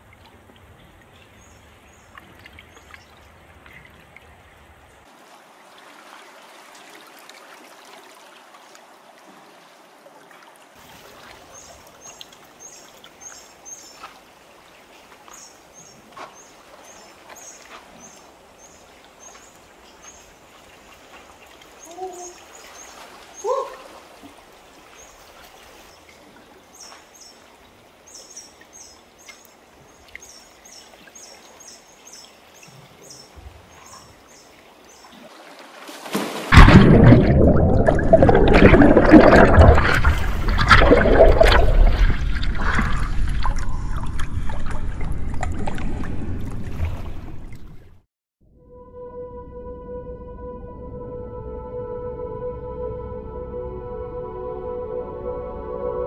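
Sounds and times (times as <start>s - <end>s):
seawater washing among rocks: 35.1s - 47.5s.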